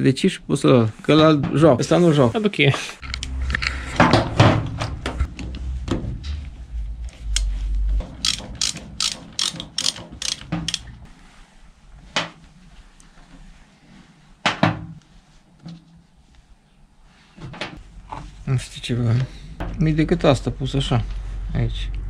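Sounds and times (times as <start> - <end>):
sharp clicks: 8.2 - 10.9.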